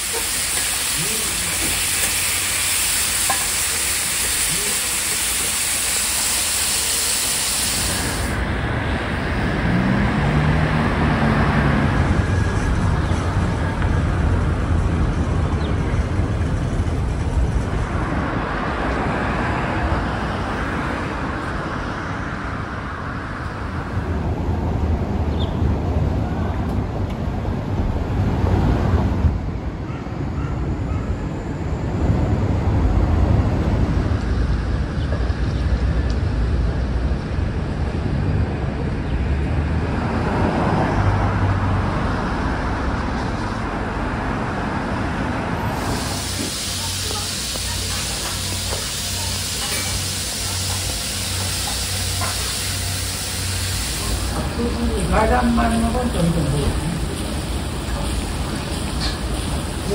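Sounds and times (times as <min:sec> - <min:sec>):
low traffic rumble: 0:07.6 - 0:59.9
meat sizzling on a griddle: 0:57.0 - 0:59.9.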